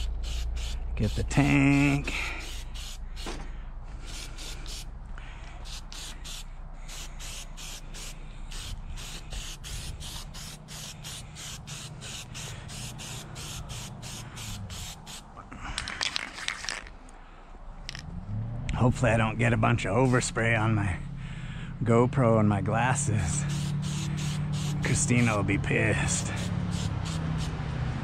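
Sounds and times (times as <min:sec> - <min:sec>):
aerosol spray paint hissing: 0:00.0 - 0:03.4, 0:04.0 - 0:04.9, 0:05.6 - 0:15.3, 0:23.3 - 0:25.4, 0:26.1 - 0:27.6.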